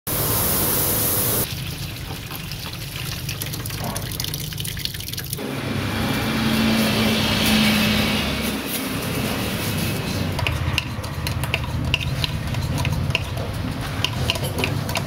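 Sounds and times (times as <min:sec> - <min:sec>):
loud hiss: 0:00.1 - 0:01.4
liquid with pellets pouring: 0:01.4 - 0:05.4.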